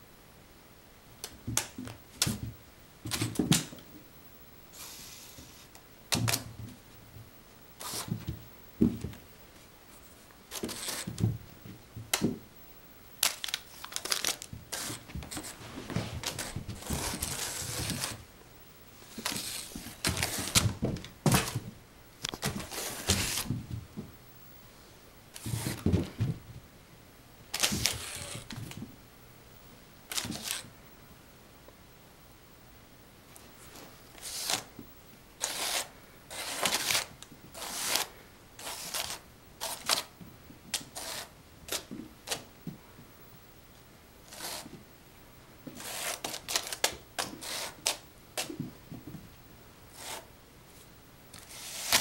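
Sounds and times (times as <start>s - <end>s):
toy dragged along floor: 10.5s - 11.2s, 14.7s - 18.2s, 22.6s - 23.6s, 25.4s - 26.2s, 27.6s - 28.5s.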